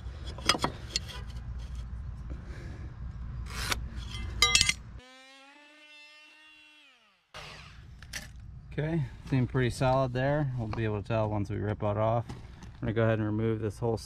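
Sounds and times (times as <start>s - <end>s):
oscillating multi-tool humming: 5.0s - 7.9s.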